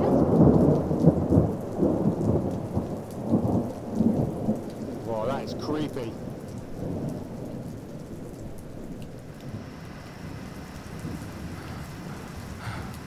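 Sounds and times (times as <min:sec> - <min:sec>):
low thunder rumble: 0:00.0 - 0:13.0
soft rain hiss: 0:00.0 - 0:13.0.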